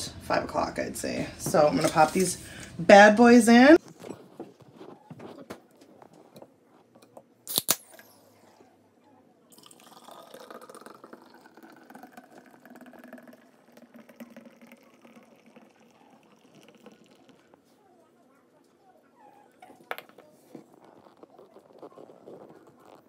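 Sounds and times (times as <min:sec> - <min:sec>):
can cracked open: 0:07.5 - 0:08.0
beer fizzing gurgling pour: 0:09.5 - 0:17.6.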